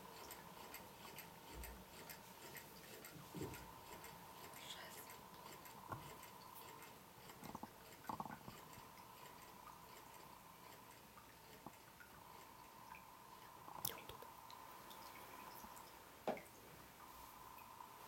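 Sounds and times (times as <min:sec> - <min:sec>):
water dripping: 0:10.9 - 0:18.0.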